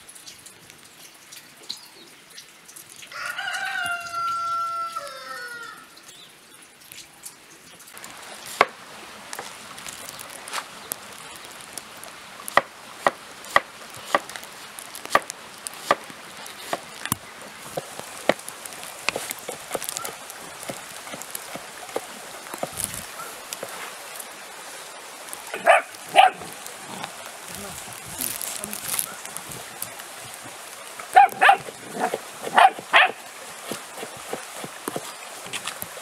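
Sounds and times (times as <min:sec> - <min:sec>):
cow tearing and chewing grass: 0:12.5 - 0:23.8, 0:25.6 - 0:30.5, 0:31.2 - 0:36.0.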